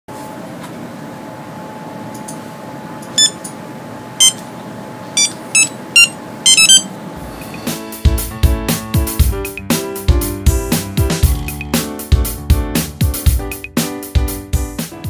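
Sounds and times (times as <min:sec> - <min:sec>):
electronic keypad beeps: 0:03.2 - 0:03.5, 0:04.2 - 0:04.4, 0:05.2 - 0:06.9.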